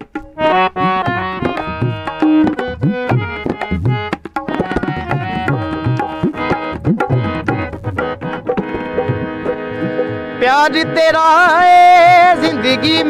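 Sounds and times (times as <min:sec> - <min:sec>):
tabla strokes: 0:00.0 - 0:10.4
harmonium chords: 0:00.0 - 0:13.0.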